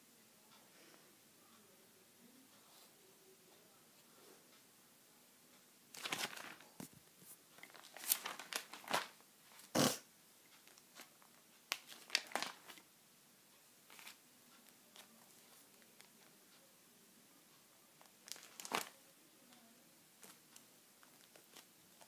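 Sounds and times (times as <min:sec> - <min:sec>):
plastic sheets crinkling: 0:05.9 - 0:09.7, 0:10.6 - 0:12.8, 0:13.9 - 0:14.2, 0:18.0 - 0:19.0, 0:20.2 - 0:22.0.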